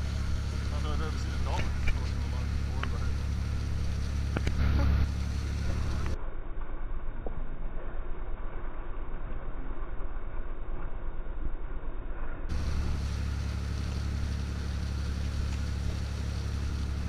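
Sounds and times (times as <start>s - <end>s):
rush of boat wake: 0.0s - 6.2s, 12.5s - 17.0s
boat engine droning: 0.0s - 8.2s, 12.5s - 17.0s.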